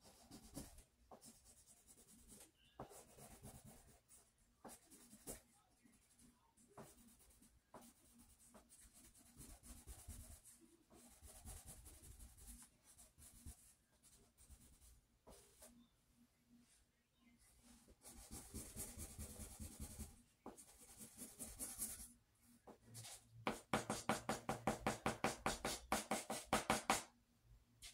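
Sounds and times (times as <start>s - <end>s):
pencil scratching on paper: 0.0s - 15.8s, 17.8s - 22.2s, 22.8s - 27.0s.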